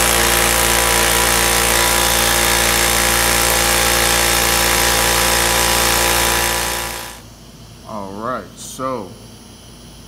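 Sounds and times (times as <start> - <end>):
air compressor running: 0.0 - 7.4.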